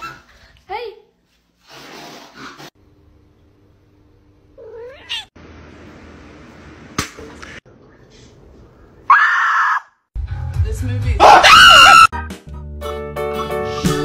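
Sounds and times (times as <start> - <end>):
cat meowing: 4.6 - 5.3.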